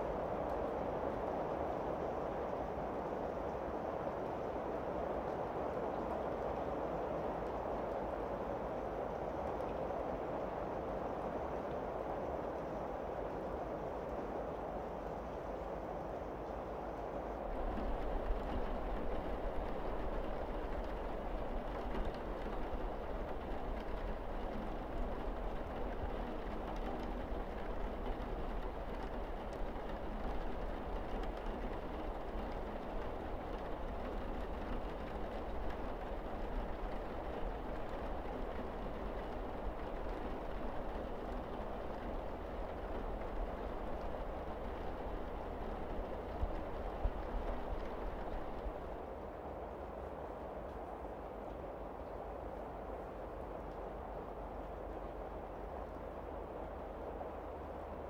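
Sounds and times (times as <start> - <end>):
rain pouring on roof: 0.0 - 58.0
raindrop ticks: 17.5 - 57.3.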